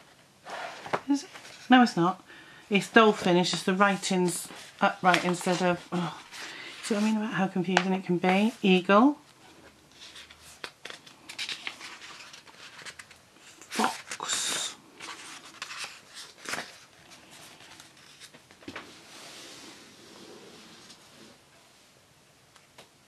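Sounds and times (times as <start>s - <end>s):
paper pages rustling: 2.8s - 8.8s, 9.9s - 19.1s.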